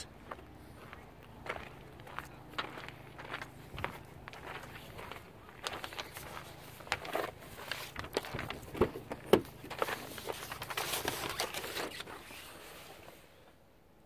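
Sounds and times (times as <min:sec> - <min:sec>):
footsteps crunching on gravel: 0:00.0 - 0:11.0.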